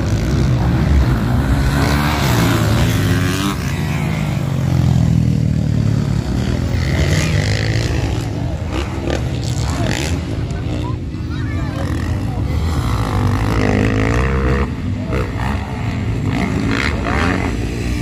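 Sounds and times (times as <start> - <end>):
dirt bike engines revving: 0.0 - 18.0.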